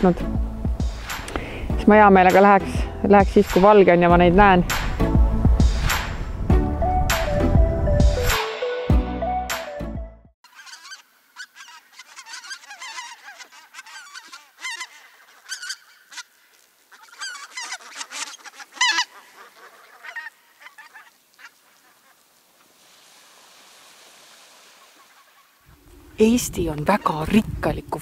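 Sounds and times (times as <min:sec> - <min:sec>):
geese honking: 0:10.4 - 0:22.8, 0:24.3 - 0:25.7.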